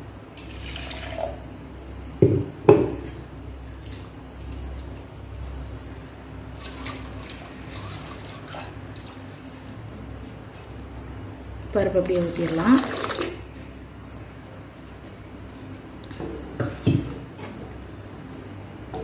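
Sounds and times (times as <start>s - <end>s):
dull knocks of cookware: 16.2s - 17.6s.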